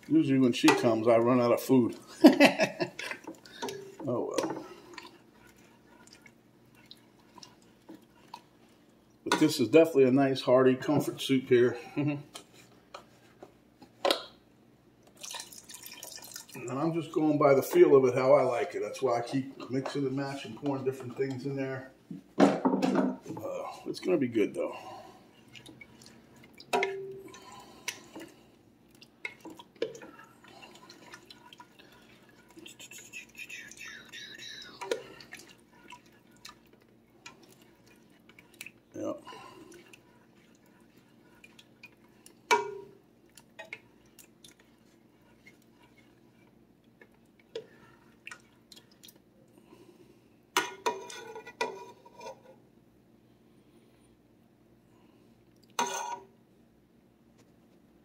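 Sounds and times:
soup sloshing in pot: 0:00.2 - 0:09.6, 0:15.1 - 0:21.4, 0:24.8 - 0:49.8
metal ladle stirring soup: 0:29.2 - 0:49.1, 0:50.6 - 0:52.6, 0:55.8 - 0:56.3
ladle clanking against pot: 0:42.5 - 0:42.9.

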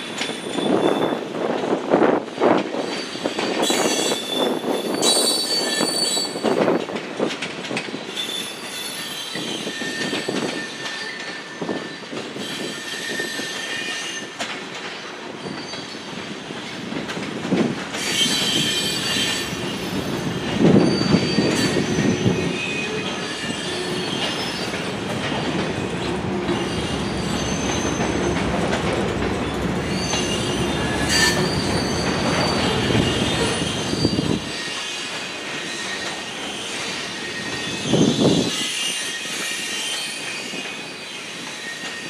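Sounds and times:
metallic wheel squeals: 0:02.9 - 0:06.6, 0:08.2 - 0:14.4, 0:18.0 - 0:24.8, 0:29.8 - 0:42.0.

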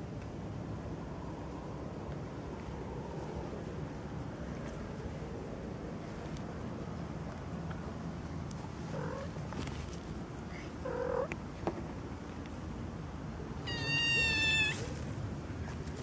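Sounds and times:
kitten meowing: 0:13.6 - 0:14.9.

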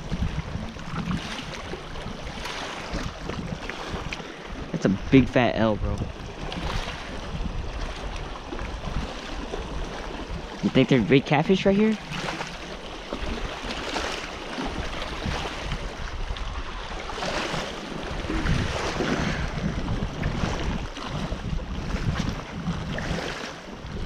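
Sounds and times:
small waves lapping on rocks: 0:00.0 - 0:24.0
wind buffeting microphone: 0:00.0 - 0:24.0.

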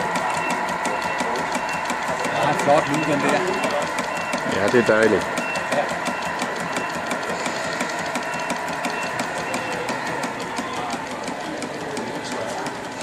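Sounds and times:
model steam engines ticking: 0:00.0 - 0:13.0.

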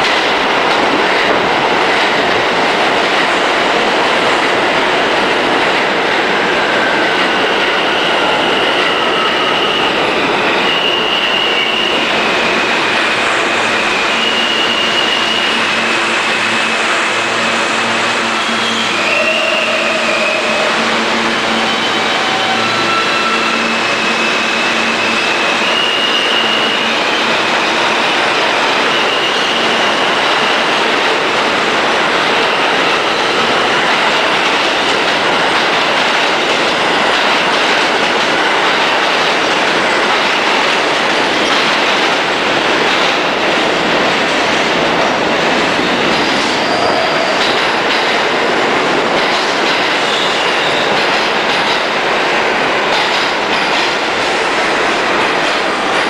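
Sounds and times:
train wheels rumbling on rail: 0:00.0 - 0:56.0
high-pitched wheel squeals: 0:18.2 - 0:27.2.

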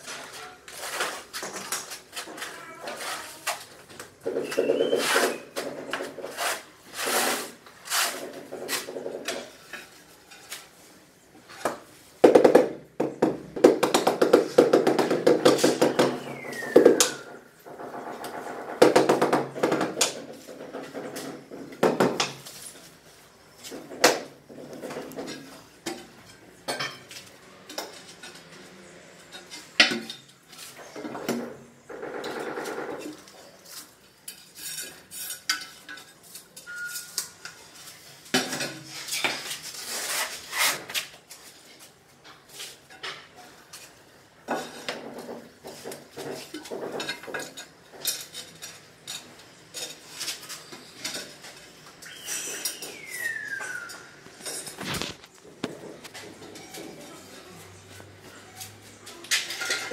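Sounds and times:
hand tools scraping mortar: 0:00.0 - 0:09.6, 0:38.8 - 0:41.1.

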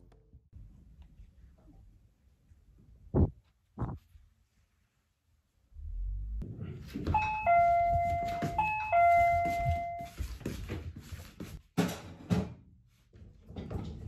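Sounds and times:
two-note doorbell chime: 0:07.1 - 0:10.3.

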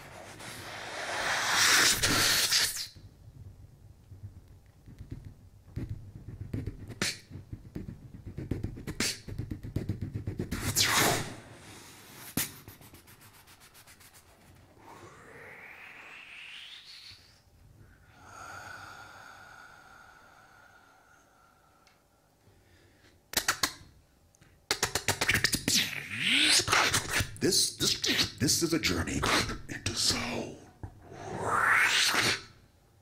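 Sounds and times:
beatboxing: 0:00.6 - 0:03.0, 0:04.8 - 0:11.3, 0:23.3 - 0:23.9, 0:24.7 - 0:32.6.

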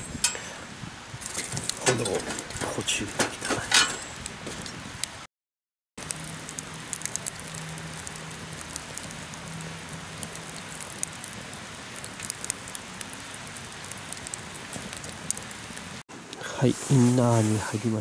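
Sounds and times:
wood fire crackling: 0:00.0 - 0:05.3, 0:06.0 - 0:18.0
rush of flame: 0:06.0 - 0:18.0.

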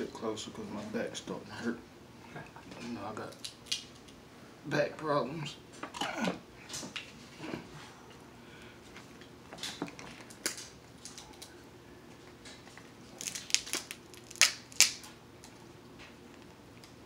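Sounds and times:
crab shell cracking: 0:03.3 - 0:04.2, 0:10.2 - 0:11.5, 0:13.2 - 0:15.1.

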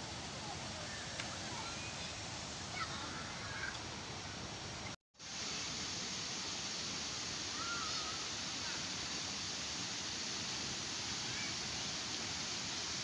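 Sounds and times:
waterfall and stream rushing: 0:00.0 - 0:13.0
faint high bird calls: 0:07.5 - 0:08.3.

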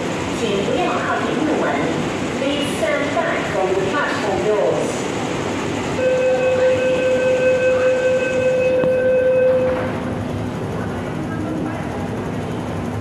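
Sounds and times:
door-closing warning tone: 0:06.0 - 0:10.0.

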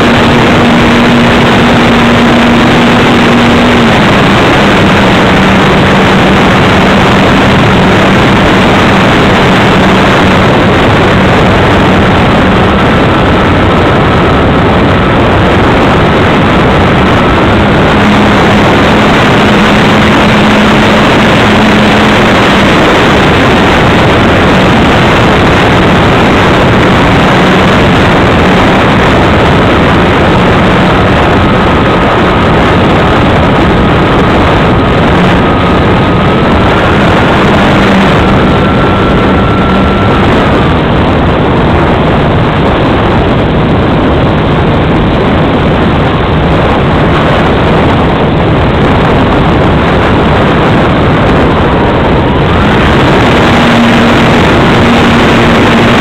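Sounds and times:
model aircraft motor droning: 0:00.0 - 0:15.1, 0:16.1 - 0:24.3
thin high whine: 0:00.0 - 0:56.0
wind rush on microphone: 0:00.0 - 0:56.0.

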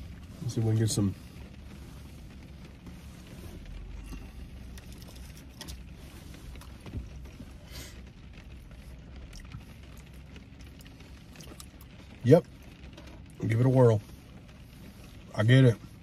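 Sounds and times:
car cabin hum: 0:00.0 - 0:16.0
rustling: 0:00.0 - 0:16.0.

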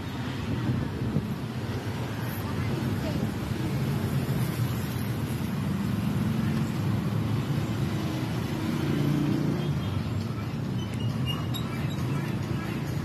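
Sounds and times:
motorcycles and cars passing: 0:00.0 - 0:13.0.

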